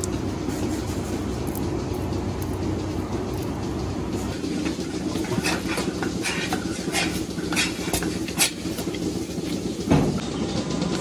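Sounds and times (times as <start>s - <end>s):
machinery low hum: 0.0s - 11.0s.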